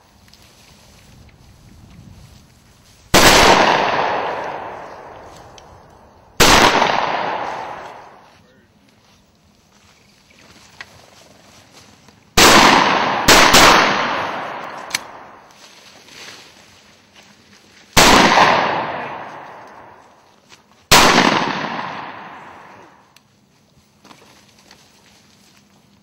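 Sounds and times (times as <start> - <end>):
shotgun shots echoing: 3.2 - 5.3, 6.4 - 8.3, 12.4 - 15.5, 18.0 - 20.0, 20.9 - 23.0.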